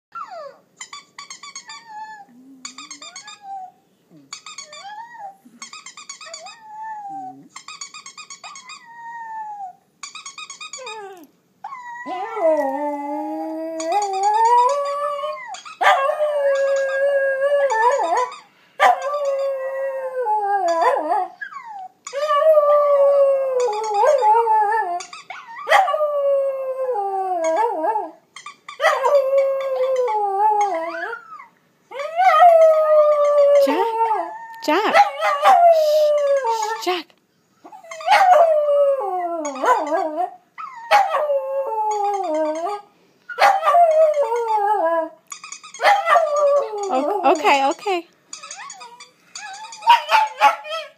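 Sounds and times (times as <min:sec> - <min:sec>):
dog howling: 0:10.8 - 0:28.2, 0:28.8 - 0:36.8, 0:37.7 - 0:42.8, 0:45.8 - 0:47.4, 0:48.5 - 0:50.9
dog howling from laptop speakers: 0:28.8 - 0:36.6, 0:37.8 - 0:42.8, 0:45.8 - 0:47.1, 0:48.6 - 0:50.9.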